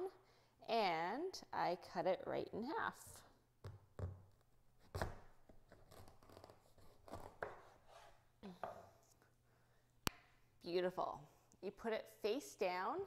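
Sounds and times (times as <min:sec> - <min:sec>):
knife scraping through squash rind: 0:04.8 - 0:08.2.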